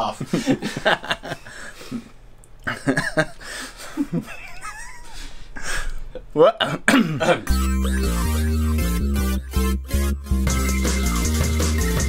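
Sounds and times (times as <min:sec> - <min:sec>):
men stifling laughter: 0:00.3 - 0:02.1, 0:02.7 - 0:05.9
high squeaky warble: 0:07.5 - 0:10.3.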